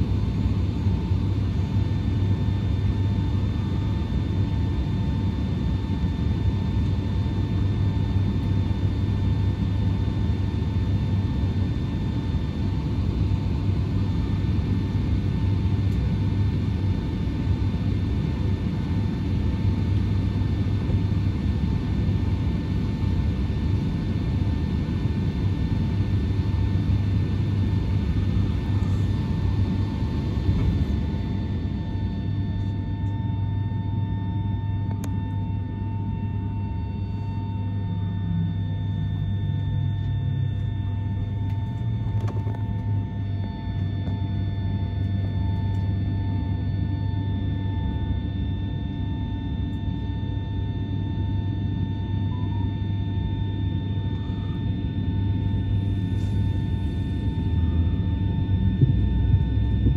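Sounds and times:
jet engines idling: 22.6 - 46.5.

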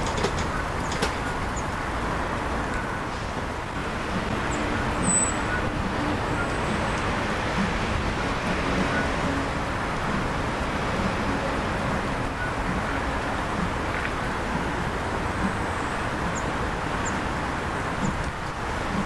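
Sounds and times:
train wheel click: 0.0 - 1.4
freight train rumbling on rails: 0.0 - 19.0.

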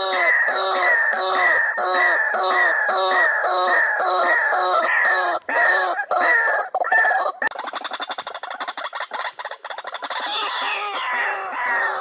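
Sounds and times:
waterhen calls: 0.0 - 12.0.

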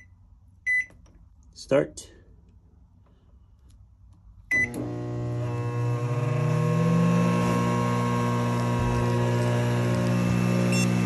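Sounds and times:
microwave keypad beep: 0.7 - 0.9, 4.5 - 4.8, 10.7 - 11.0
microwave deep heavy hum: 4.4 - 11.0.

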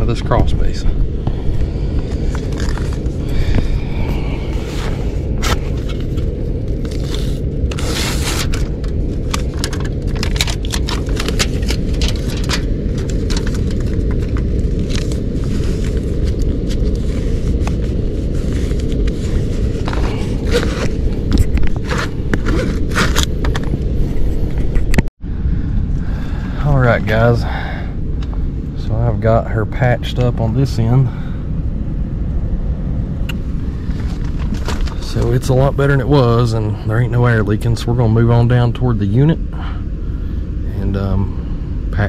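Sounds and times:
low rumble: 0.0 - 42.0
foil crinkling and scraping: 2.2 - 3.1, 4.6 - 23.6, 33.9 - 35.5.

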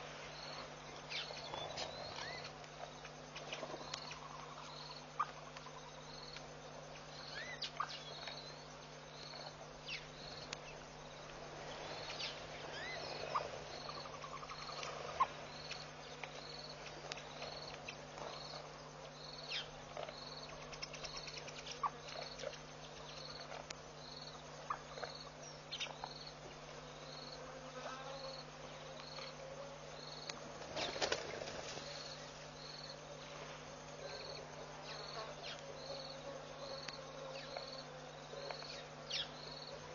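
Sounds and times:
insect chirping: 0.0 - 39.9
low electrical hum: 0.0 - 39.9.

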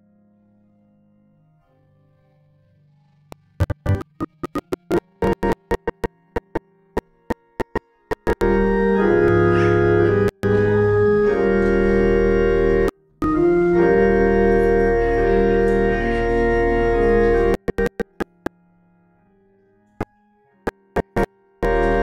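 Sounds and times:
church organ chords: 7.6 - 18.5, 20.9 - 22.0.

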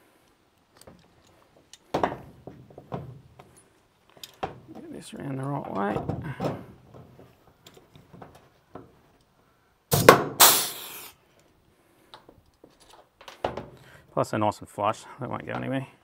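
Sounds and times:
rivet gun sharp crack: 9.9 - 11.2
short hiss of air: 9.9 - 11.2.

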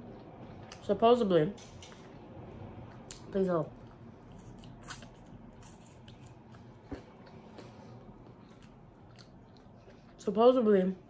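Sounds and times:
person chewing: 3.8 - 10.2.

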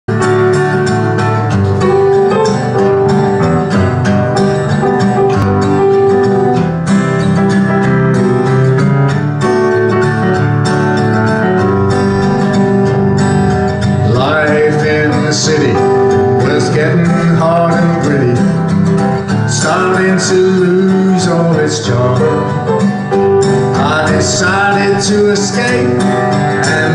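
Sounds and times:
piano: 0.0 - 26.9
acoustic guitar strumming: 0.1 - 26.9
man singing: 14.0 - 23.0, 23.6 - 26.9.

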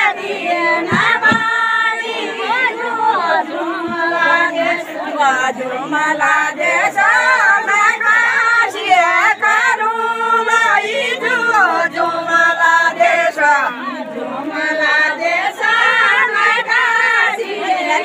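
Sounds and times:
women singing folk song: 0.0 - 18.0.

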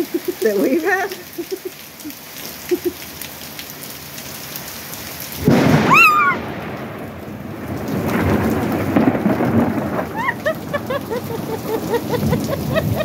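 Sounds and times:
rain hiss: 0.0 - 13.0
rolling thunder: 5.4 - 13.0
thunder clap: 5.4 - 13.0.

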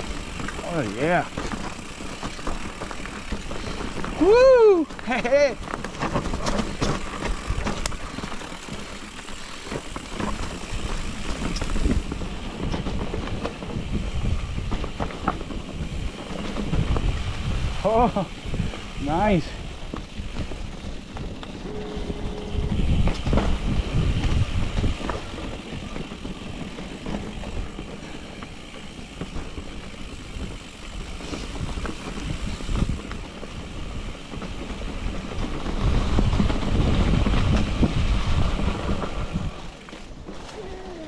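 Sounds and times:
bike knocks and rattles: 0.0 - 41.0
wind rushing on microphone: 10.6 - 39.8.

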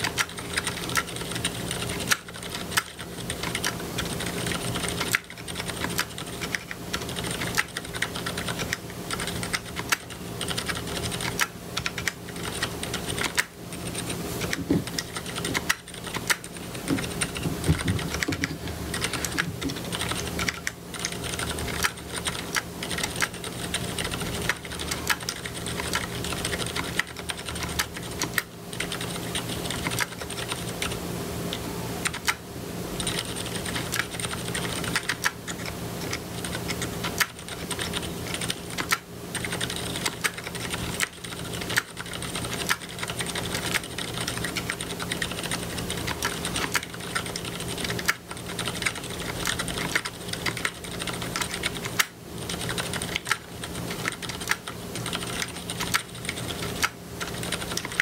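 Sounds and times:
typing on mechanical keyboard: 0.0 - 32.4, 33.0 - 58.0.

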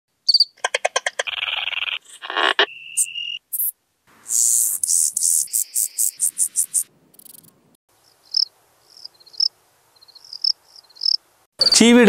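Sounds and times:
fast high-pitched insect pulses: 0.3 - 7.6, 10.1 - 11.2
insect buzzing: 1.2 - 11.2
insect chirps: 1.2 - 11.2
high insect trill: 3.0 - 11.2.

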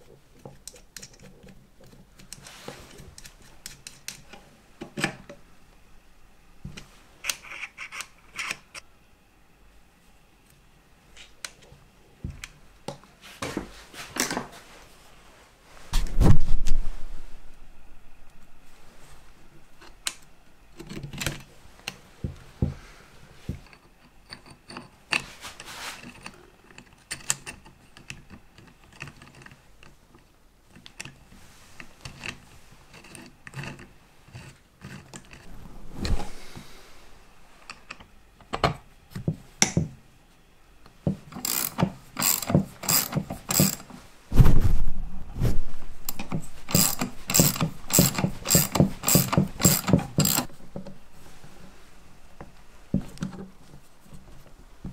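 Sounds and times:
low rumble: 35.5 - 37.5, 44.3 - 46.1
ratchet clicking: 41.4 - 43.8, 46.7 - 50.5.

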